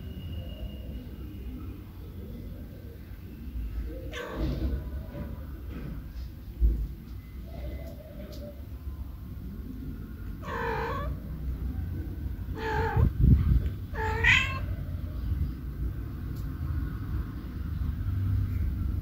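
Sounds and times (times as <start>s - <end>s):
cat meowing: 4.1s - 4.8s, 10.4s - 11.3s, 12.5s - 13.2s, 13.9s - 14.8s
steady low rumble: 11.0s - 16.4s.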